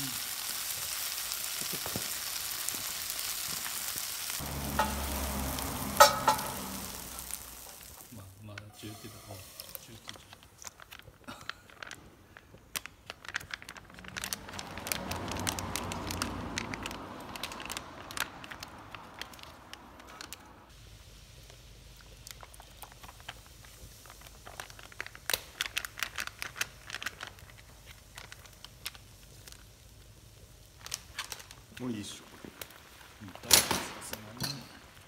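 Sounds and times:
plastic pouch crinkling: 0.0s - 8.2s, 9.3s - 20.4s, 21.8s - 33.3s
rushing noise: 4.4s - 8.2s.

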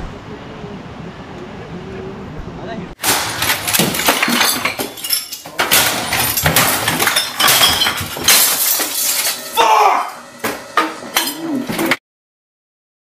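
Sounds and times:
crashes and knocks: 3.0s - 9.5s
glass breaking and clinking: 3.0s - 10.0s, 10.8s - 11.4s.

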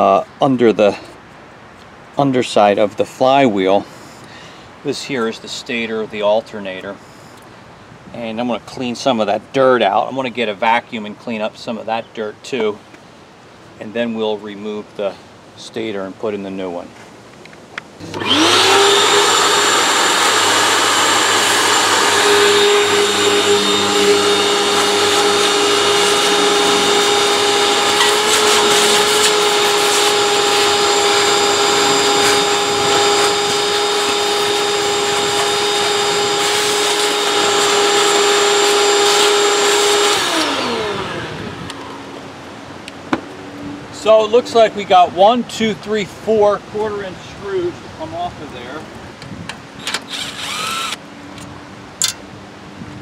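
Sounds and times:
hose sucking dirt: 18.0s - 41.8s
shop vacuum motor whine: 18.0s - 42.0s, 49.9s - 51.0s.

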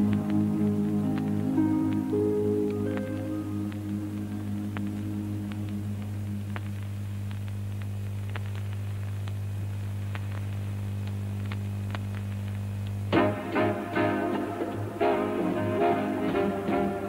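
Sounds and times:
soundtrack music: 0.0s - 7.0s, 13.1s - 17.0s
electrical mains hum: 0.0s - 17.0s
faint clicks: 1.1s - 13.1s.

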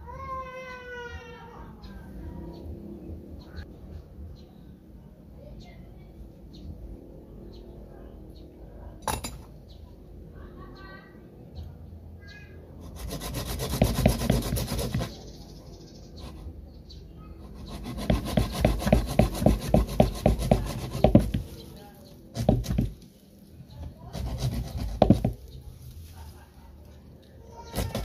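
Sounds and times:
hand saw scraping through wood: 12.8s - 15.2s, 17.4s - 21.7s, 22.3s - 23.0s, 24.0s - 25.5s, 27.7s - 28.0s.

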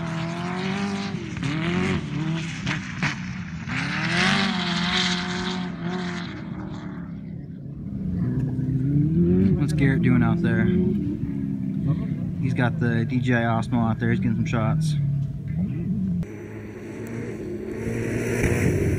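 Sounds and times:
sand car engine revving: 0.0s - 18.9s.

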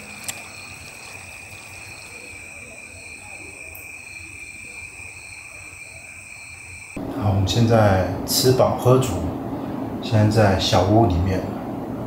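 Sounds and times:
insects chirring: 0.0s - 7.0s.

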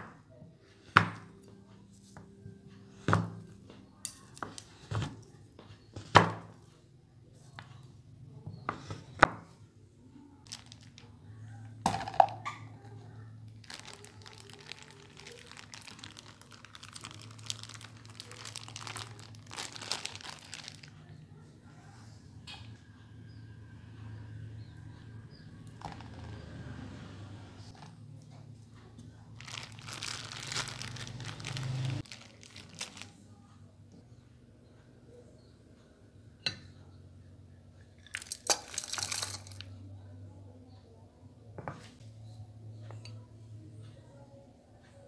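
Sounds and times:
crinkling and scraping in steel bowl: 10.4s - 21.1s, 25.6s - 26.5s, 27.7s - 33.2s, 38.0s - 39.8s.

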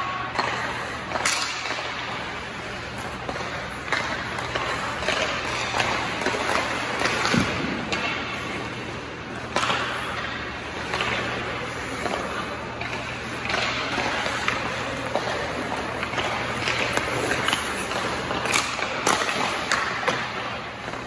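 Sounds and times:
skate blades scraping ice: 0.0s - 21.0s
sticks hitting pucks: 0.0s - 21.0s.

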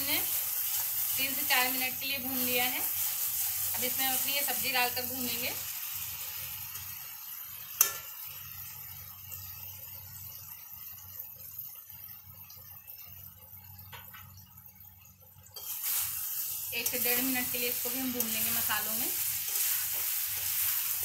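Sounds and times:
stirring in a pan: 0.0s - 8.1s, 15.5s - 21.0s
vegetables sizzling in oil: 0.0s - 14.7s, 15.3s - 21.0s.

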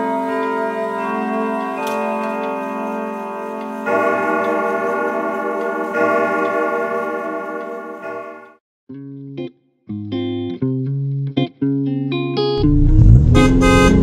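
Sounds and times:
sustained held chords: 1.6s - 8.6s, 12.6s - 14.0s.

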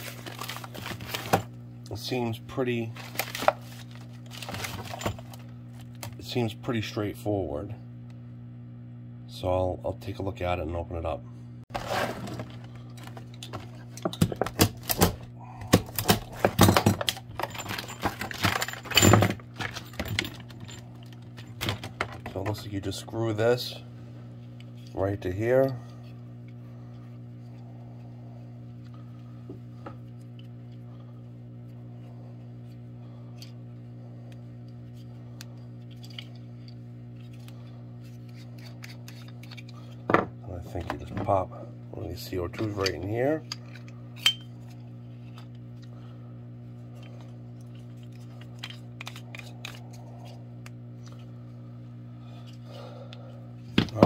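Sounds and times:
low electrical hum: 0.0s - 54.0s
faint clicks of handled parts: 34.3s - 40.0s.

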